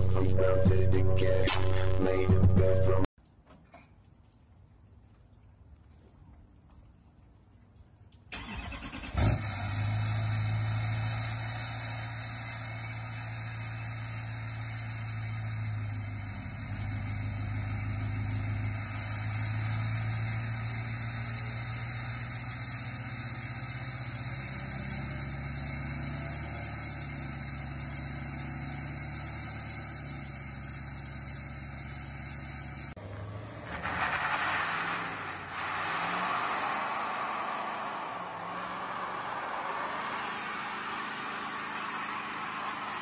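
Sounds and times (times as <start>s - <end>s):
diesel pickup idling: 8.4s - 33.4s.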